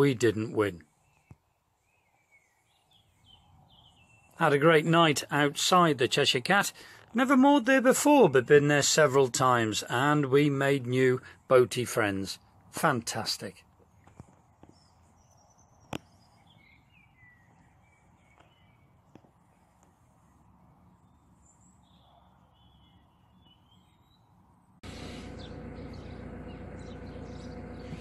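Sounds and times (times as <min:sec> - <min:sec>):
faint bird calls: 0:21.1 - 0:28.0
boat engine running: 0:24.8 - 0:28.0.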